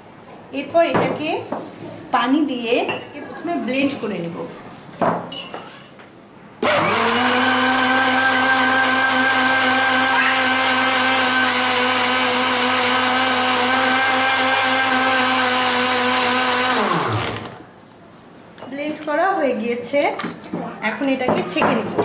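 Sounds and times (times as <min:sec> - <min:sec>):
electric blender running: 0:06.6 - 0:17.6.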